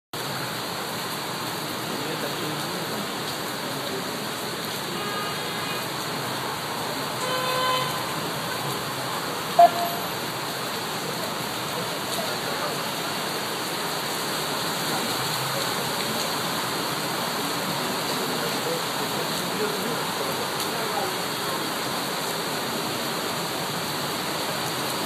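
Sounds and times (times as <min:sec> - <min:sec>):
rain: 0:00.1 - 0:25.0
traffic on wet street: 0:00.2 - 0:25.0
car horn honking: 0:07.2 - 0:08.2, 0:09.6 - 0:10.2
short loud beep: 0:09.6 - 0:10.1.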